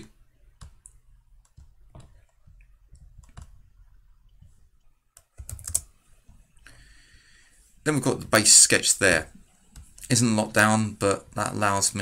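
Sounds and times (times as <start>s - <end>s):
computer keyboard typing: 0.5s - 6.0s.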